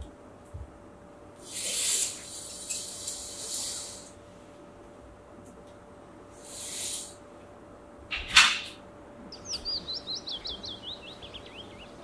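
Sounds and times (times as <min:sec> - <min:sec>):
birds chirping: 0:09.2 - 0:12.0.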